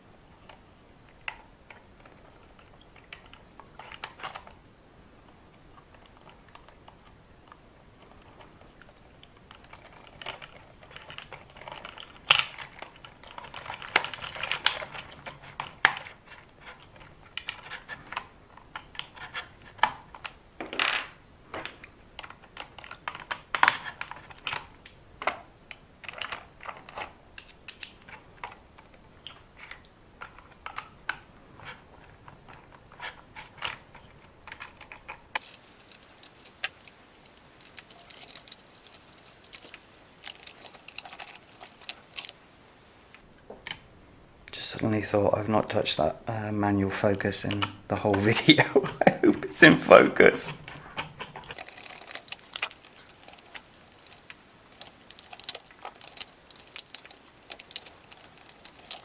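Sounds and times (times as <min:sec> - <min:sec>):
hand tools clicking and rattling: 0:33.0 - 0:42.4, 0:51.0 - 0:59.0.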